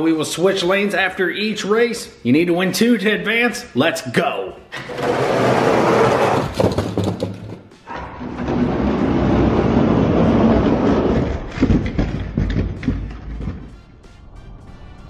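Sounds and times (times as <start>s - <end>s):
toy trucks rumbling down plastic track: 4.8s - 7.6s, 8.2s - 13.8s.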